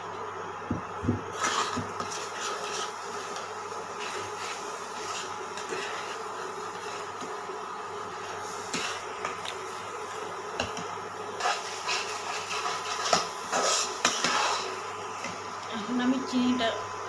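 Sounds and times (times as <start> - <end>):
steady hum: 0.0 - 17.0
spatula scraping a pan: 1.3 - 7.2, 8.6 - 9.1, 11.3 - 14.8.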